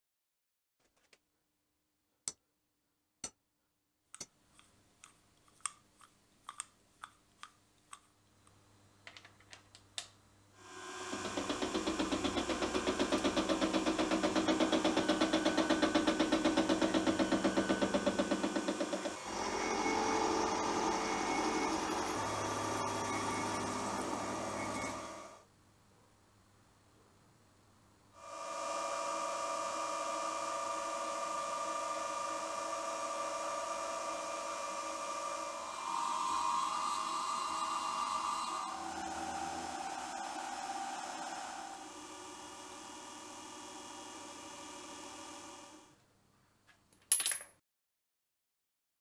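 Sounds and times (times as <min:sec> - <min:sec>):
milling machine cutting metal: 0:10.6 - 0:25.4, 0:28.3 - 0:45.8.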